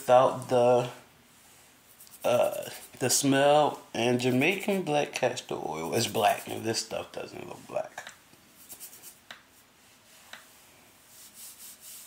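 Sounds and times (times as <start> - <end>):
fingers rubbing hair: 1.9 - 3.2, 4.1 - 4.9, 5.8 - 7.0, 8.6 - 9.6, 11.1 - 12.0.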